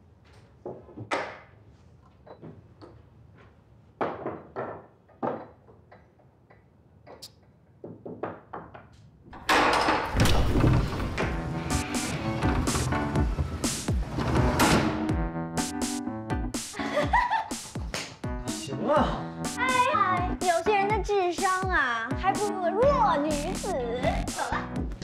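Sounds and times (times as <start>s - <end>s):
objects knocking and clunking: 0.6s - 3.0s, 4.0s - 15.1s
loud music: 11.0s - 25.0s.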